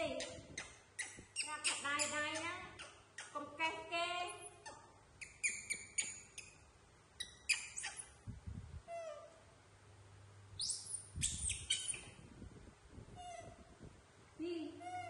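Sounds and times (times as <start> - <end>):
macaques squeaking and chirping: 0.1 - 3.4, 4.3 - 6.6, 7.2 - 8.2, 10.6 - 12.2, 13.2 - 13.6, 14.8 - 15.0.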